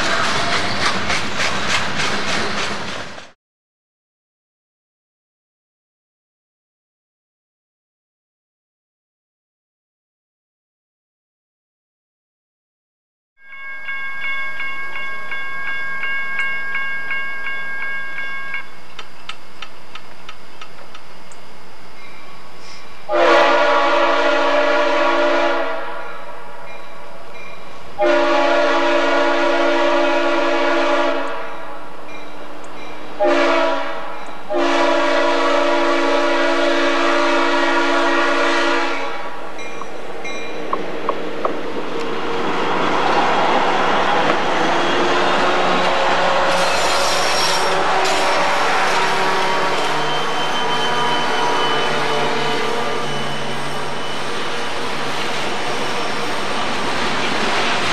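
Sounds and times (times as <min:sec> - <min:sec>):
train running noise: 0:00.0 - 0:03.4, 0:13.8 - 0:57.9
locomotive air horn: 0:23.1 - 0:26.1, 0:28.0 - 0:31.5, 0:33.2 - 0:39.4, 0:45.2 - 0:54.0.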